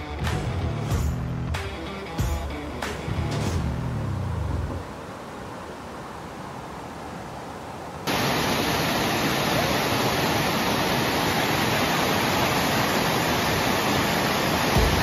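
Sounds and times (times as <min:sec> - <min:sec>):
water pouring over dam: 0:08.1 - 0:15.0.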